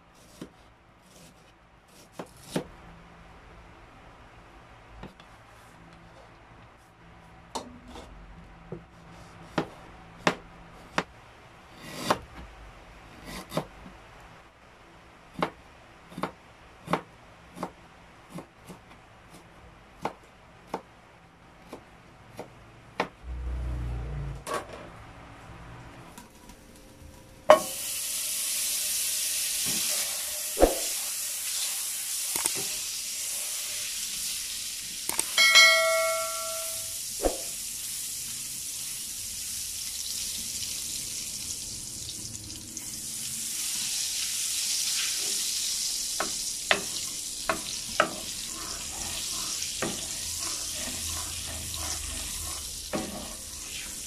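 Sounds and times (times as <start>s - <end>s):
butter sizzling in a wok: 27.5s - 54.0s
bell chime ringing: 35.4s - 37.0s
wooden spatula stirring: 46.7s - 53.4s.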